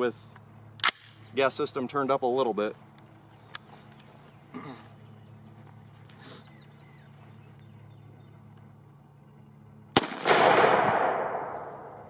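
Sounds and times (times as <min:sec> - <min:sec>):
faint low hum: 0:00.0 - 0:10.0
rifle shot with rolling echo: 0:09.9 - 0:12.0.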